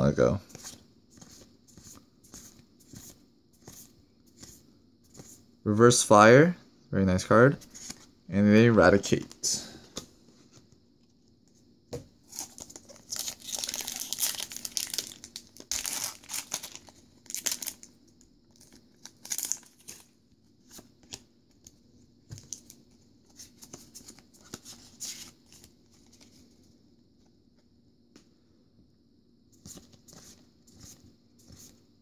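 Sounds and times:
wrapper crinkling and rustling: 12.3s - 17.9s, 18.6s - 20.1s
foil pack tearing: 12.4s - 17.8s.

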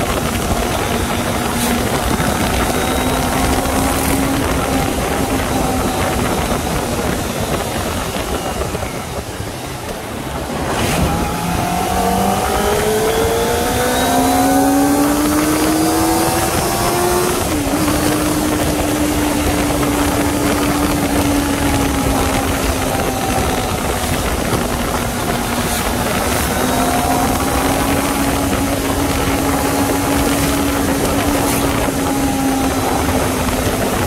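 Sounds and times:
motorcycle engine revving: 0.0s - 34.0s
wind rush: 0.0s - 34.0s.

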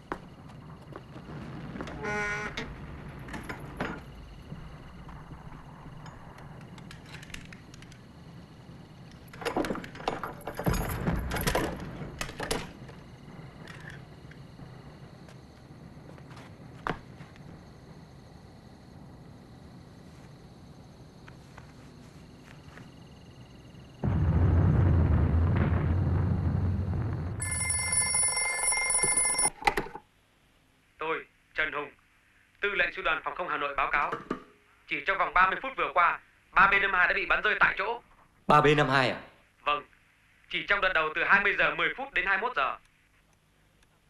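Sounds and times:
chain and padlock rattling: 9.3s - 12.6s
deep rumble of bomb blasts: 24.0s - 27.4s
telephone bell ringing: 27.4s - 29.6s.

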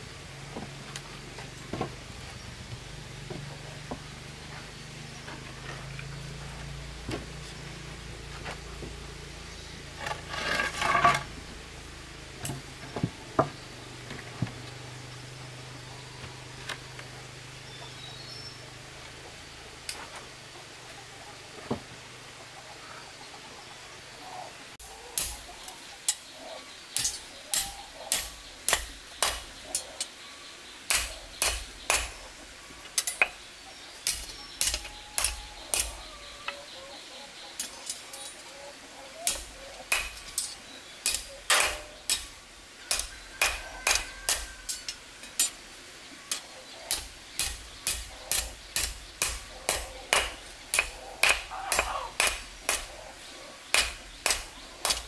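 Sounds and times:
hammer striking on stone: 30.9s - 32.2s, 39.3s - 42.3s, 42.9s - 45.6s, 46.9s - 52.9s, 53.7s - 55.0s.

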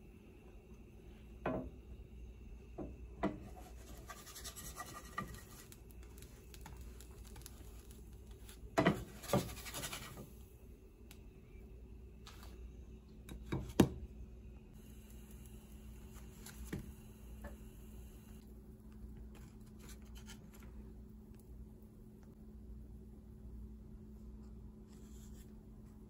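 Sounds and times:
wooden spatula scraping frying pan: 3.3s - 5.8s, 8.8s - 10.3s.

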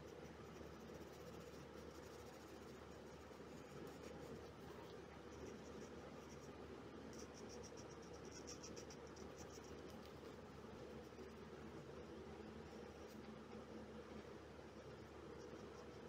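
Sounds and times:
paintbrush brushing on paper: 0.0s - 11.9s
low room hum: 0.0s - 16.0s.

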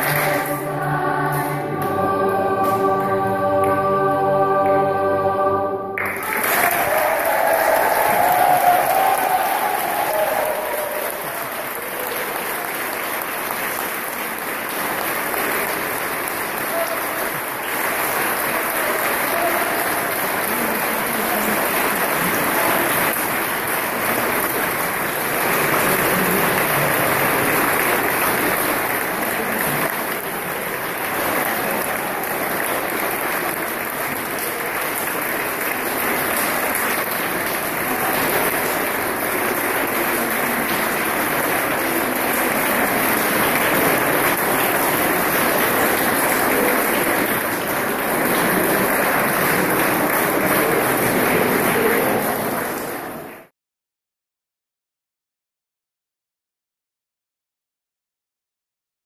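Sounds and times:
crowd applauding: 0.0s - 3.8s, 6.0s - 53.5s.

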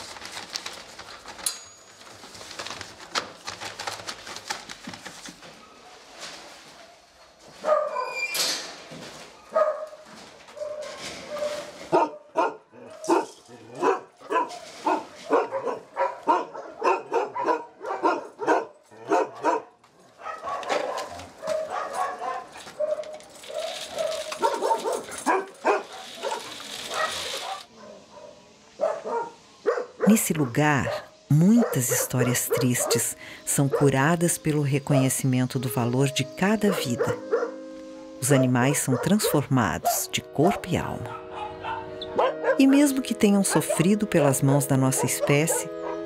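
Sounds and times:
dogs barking: 6.7s - 8.2s, 9.4s - 35.2s, 36.4s - 46.0s
dog yelping: 7.6s - 8.3s, 10.6s - 30.2s, 41.1s - 42.6s.

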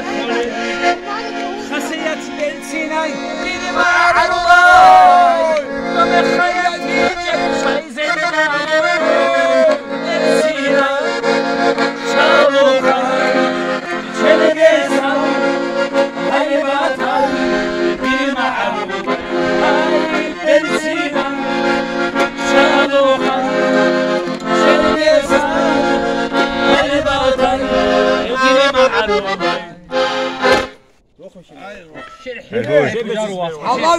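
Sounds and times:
accordion playing folk tune: 0.0s - 31.0s, 32.7s - 33.9s
man singing: 1.7s - 11.4s, 12.0s - 15.6s, 16.2s - 29.8s.

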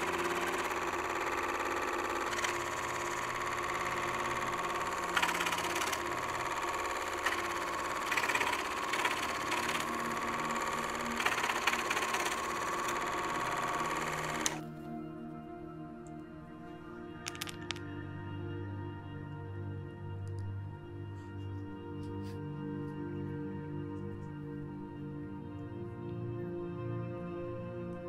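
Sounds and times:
scroll saw cutting wood: 0.0s - 14.6s
soft background music: 0.0s - 28.0s.

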